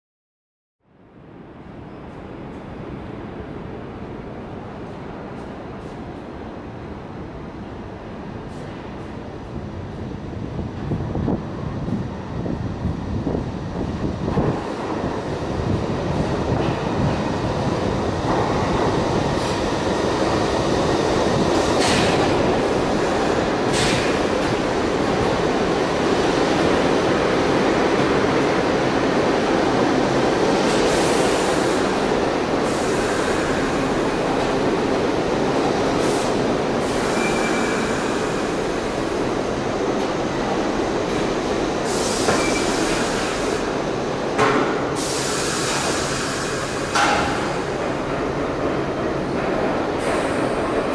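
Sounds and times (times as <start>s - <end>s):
subway train wheels rumbling on rail: 0.9s - 50.9s
train brakes squealing: 36.8s - 38.6s, 41.9s - 43.6s.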